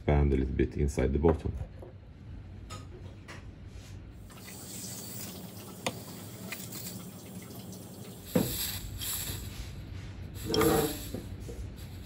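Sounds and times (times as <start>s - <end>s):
gas hissing from nozzle: 4.4s - 7.1s, 8.1s - 12.0s.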